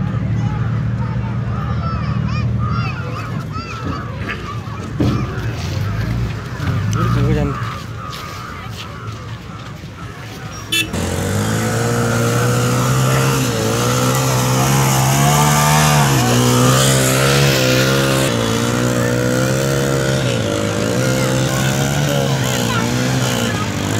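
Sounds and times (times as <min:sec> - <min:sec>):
motorcycle engine revving: 0:10.7 - 0:23.9.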